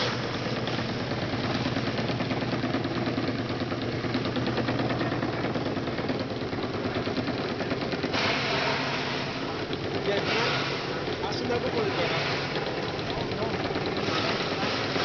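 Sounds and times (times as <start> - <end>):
fibre-stripping machine running: 0.0 - 15.0
loud hiss: 8.1 - 9.6, 10.2 - 11.1, 11.7 - 12.7.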